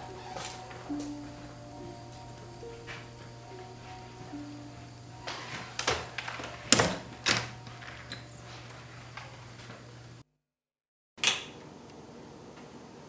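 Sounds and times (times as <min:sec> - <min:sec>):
footsteps: 0:00.0 - 0:10.0.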